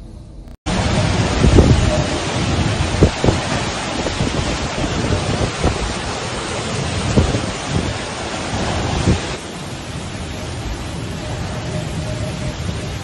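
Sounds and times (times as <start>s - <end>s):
strong gusting wind: 0.0s - 13.0s
heavy rain: 0.7s - 13.0s
wind buffeting microphone: 0.7s - 13.0s.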